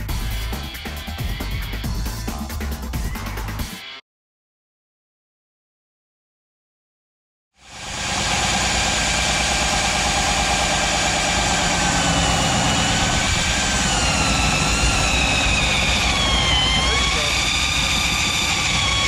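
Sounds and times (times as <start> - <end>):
drill with hole saw cutting wood: 7.6 - 19.0.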